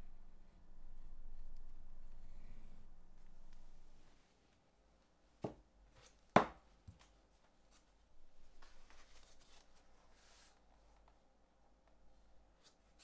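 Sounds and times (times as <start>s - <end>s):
sharp knocks on workbench: 6.4s - 6.6s
light scratching and rustling: 7.7s - 11.1s.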